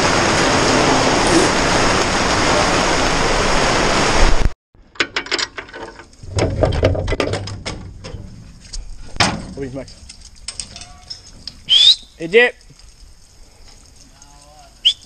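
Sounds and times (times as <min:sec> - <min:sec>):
heavy rain on metal: 0:00.0 - 0:04.5
metal latch clicks and knocks: 0:04.9 - 0:08.3.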